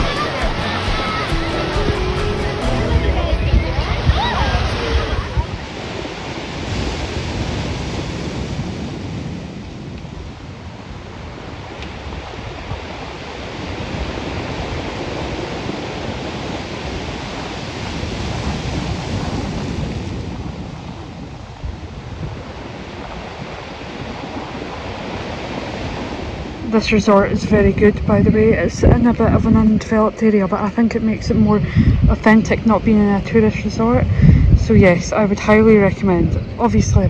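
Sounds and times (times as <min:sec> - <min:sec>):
ocean surf crashing on rocks: 0:00.0 - 0:37.0.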